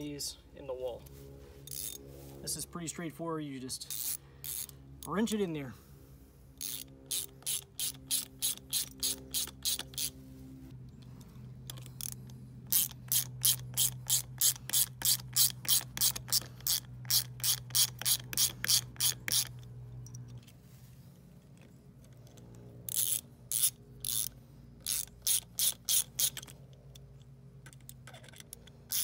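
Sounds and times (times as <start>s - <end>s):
hand ratchet clicking: 1.7s - 2.0s, 3.9s - 5.2s, 6.6s - 10.2s, 11.0s - 20.4s, 22.0s - 29.0s.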